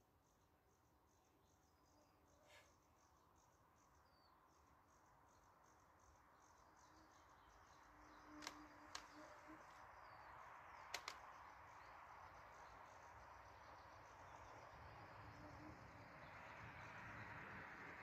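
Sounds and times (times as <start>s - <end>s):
faint sharp clicks: 8.4s - 9.2s, 10.8s - 11.3s.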